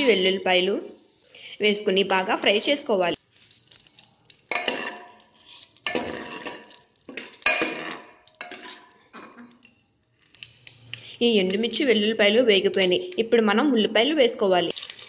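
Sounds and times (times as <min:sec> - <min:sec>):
ladle scraping metal pot: 0:04.5 - 0:09.7.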